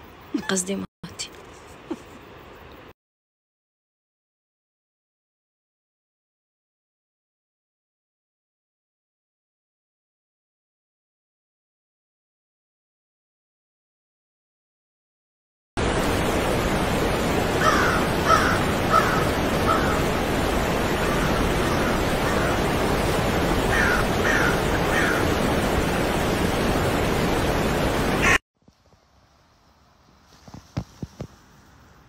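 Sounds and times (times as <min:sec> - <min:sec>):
loud steady rushing noise: 0:15.8 - 0:28.4
birds harsh calls: 0:17.6 - 0:20.2, 0:20.9 - 0:22.8, 0:23.6 - 0:25.4.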